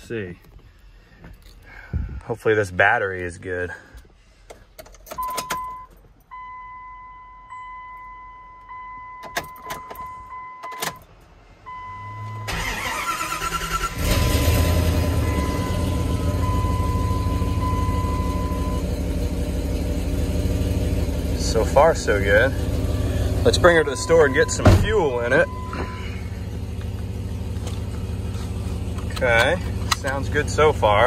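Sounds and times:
engine cranking: 12.5 - 15.2
engine idling: 12.5 - 31.0.

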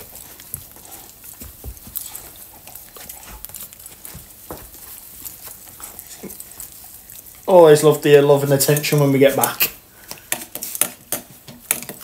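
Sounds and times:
dog licking and snuffling: 0.0 - 7.5.

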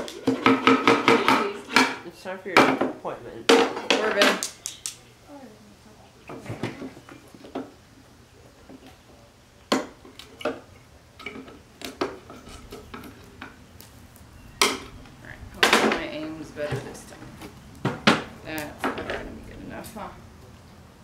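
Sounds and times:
wire cutters snapping nails: 4.3 - 5.0.

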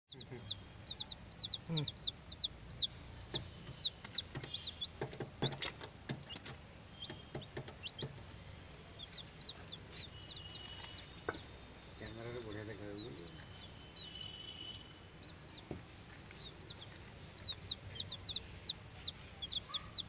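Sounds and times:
chicks peeping: 0.1 - 20.0
sharp knocks: 3.3 - 8.2.

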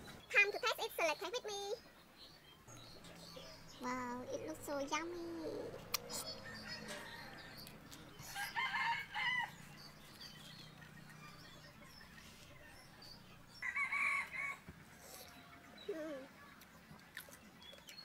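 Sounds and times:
rooster crowing: 6.4 - 9.8, 13.6 - 14.6.

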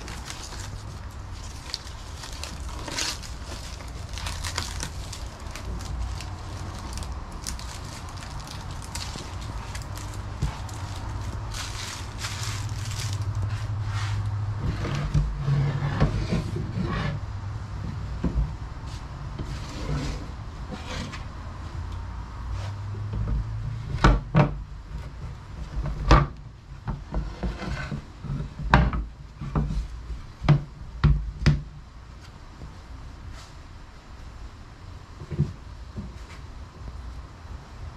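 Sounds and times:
wood rubbing and scraping: 0.0 - 17.2, 18.8 - 21.3, 27.1 - 28.7.

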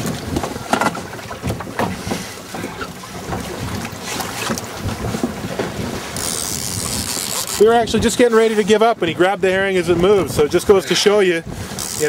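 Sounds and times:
water splashing against boat: 0.0 - 12.0
wind buffeting microphone: 0.0 - 12.0.

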